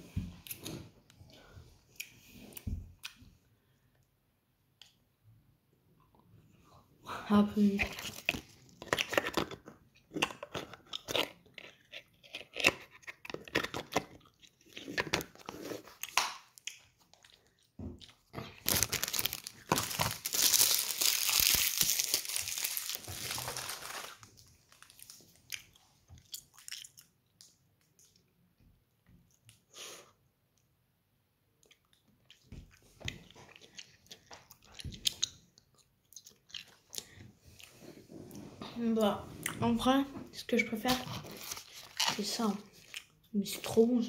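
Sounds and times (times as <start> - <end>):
sweets being chewed and crunched: 7.6 - 28.3, 31.6 - 39.6, 40.5 - 43.8
plastic wrapper crinkling: 7.8 - 9.6, 18.4 - 25.7, 40.8 - 42.9.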